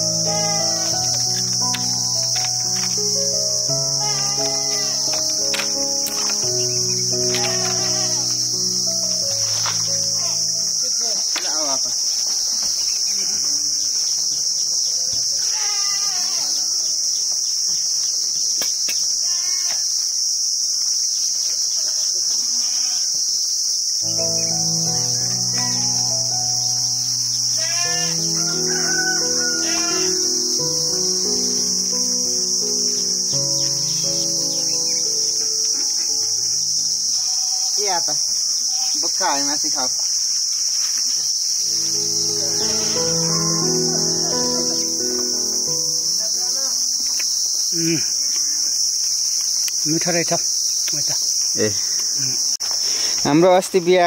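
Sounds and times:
background music with held notes: 0.0 - 10.9, 24.0 - 37.2, 41.7 - 46.6
high-pitched insect drone: 0.0 - 53.4
crickets trilling: 0.0 - 54.0.

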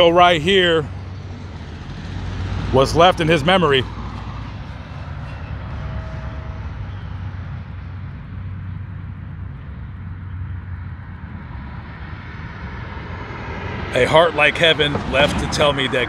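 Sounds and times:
constant low hum: 0.0 - 16.0
road traffic: 0.0 - 16.0.

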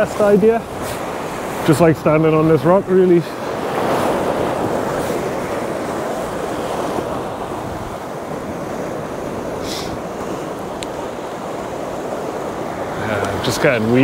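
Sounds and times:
sea surf rushing: 0.0 - 14.0
wind on microphone: 0.0 - 14.0
short hiss: 9.6 - 10.0.

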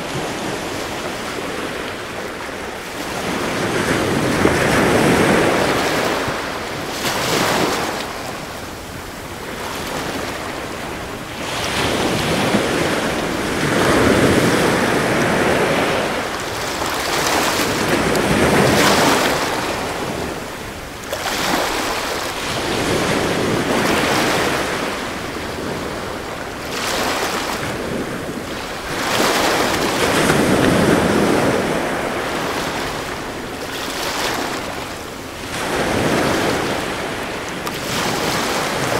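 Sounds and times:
sea waves washing onto shore: 0.0 - 38.9.

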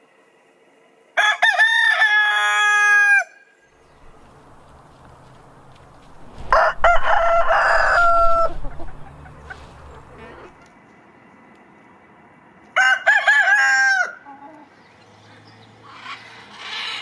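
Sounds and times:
rooster crowing: 1.2 - 3.5, 6.3 - 10.5, 12.8 - 14.2.

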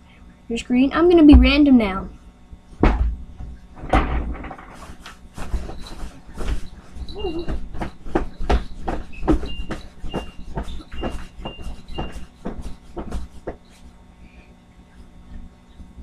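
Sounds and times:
thumps on a bed: 2.8 - 6.7
short high squeaks: 5.7 - 7.6.

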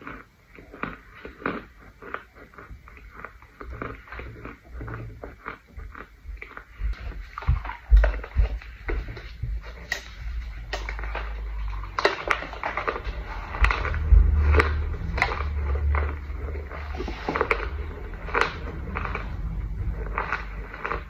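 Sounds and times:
chewing crunches: 0.0 - 21.0
low rumble: 6.4 - 21.0.

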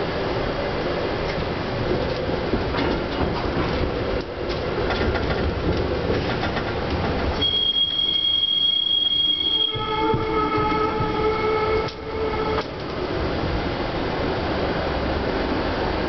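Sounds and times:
streetcar rumbling on track: 0.0 - 16.0
steel wheels squealing on rails: 6.1 - 13.0.

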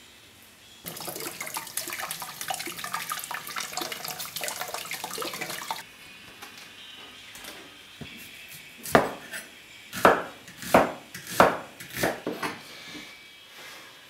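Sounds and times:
tap water splashing over onion: 0.9 - 5.8.

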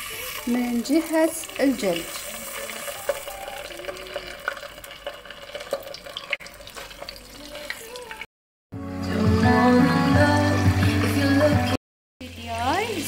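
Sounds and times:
chicken sizzling in oil: 0.0 - 8.3, 12.2 - 13.0.

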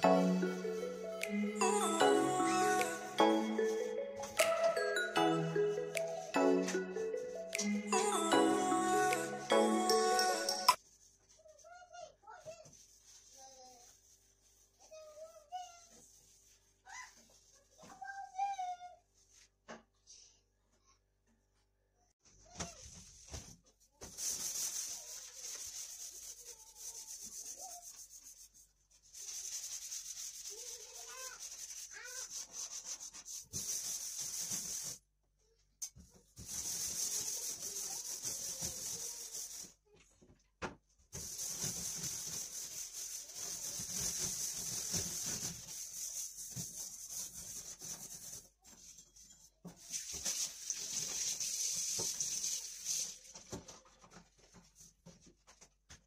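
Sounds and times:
hand scrubbing steel sink: 41.2 - 48.4.

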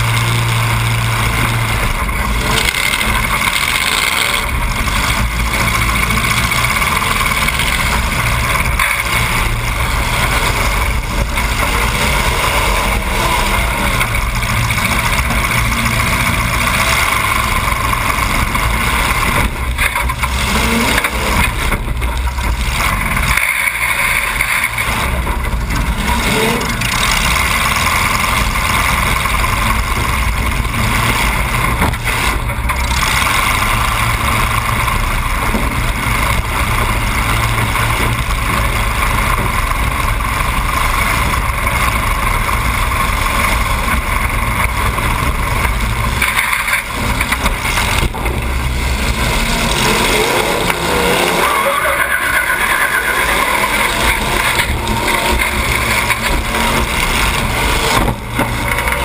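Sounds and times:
car engine revving loud: 0.0 - 59.0.

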